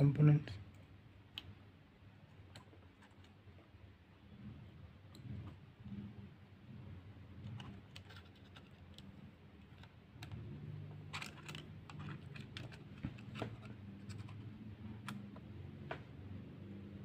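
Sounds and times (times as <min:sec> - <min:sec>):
low steady hum: 0:00.0 - 0:17.0.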